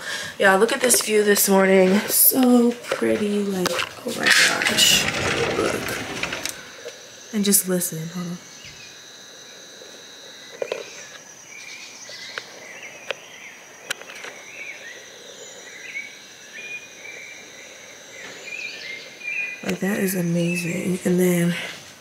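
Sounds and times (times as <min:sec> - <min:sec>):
high insect drone: 0:00.0 - 0:22.0
birds chirping and warbling: 0:10.6 - 0:21.6.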